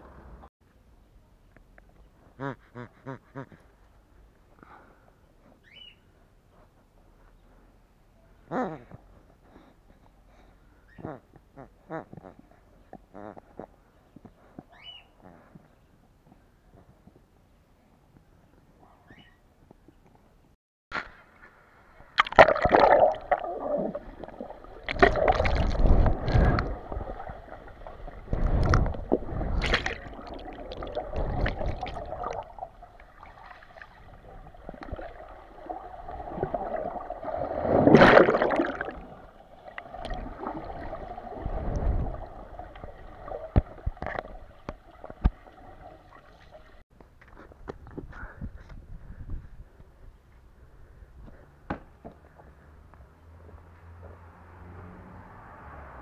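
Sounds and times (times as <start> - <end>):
underwater water sloshing: 22.1 - 46.8.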